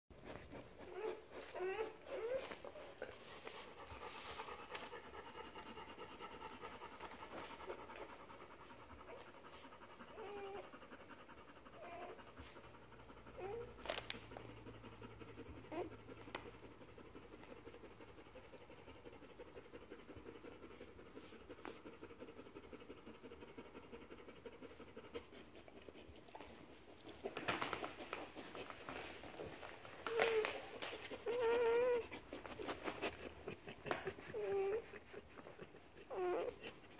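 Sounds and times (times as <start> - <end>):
dog panting: 0.1 - 36.9
puppy squeaking faintly: 0.3 - 4.0, 29.6 - 33.2.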